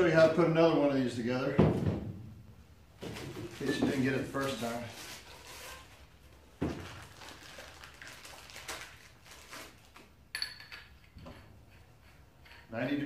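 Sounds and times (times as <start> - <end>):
pipe fittings handling noise: 9.5 - 12.9.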